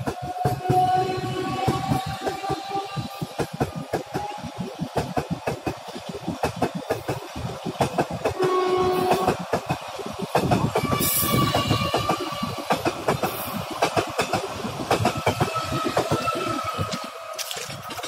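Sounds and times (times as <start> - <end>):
train wheels clattering over joints: 0.0 - 18.0
train horn: 0.1 - 3.1, 8.4 - 9.4, 10.8 - 12.7.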